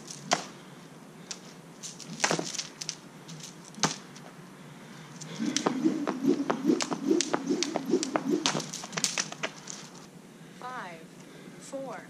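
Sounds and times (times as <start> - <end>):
jump rope clacking on concrete: 5.6 - 9.6.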